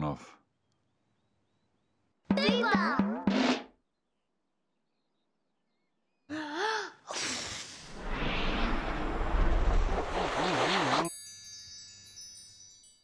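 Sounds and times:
rushing whoosh with deep rumble: 7.9s - 11.0s
twinkling chimes: 11.1s - 13.0s.

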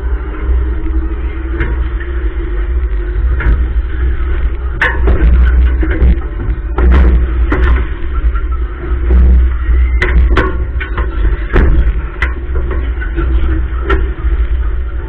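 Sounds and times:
fairground ride rumble: 0.0s - 15.0s
sharp knocks and bangs: 4.8s - 8.0s.

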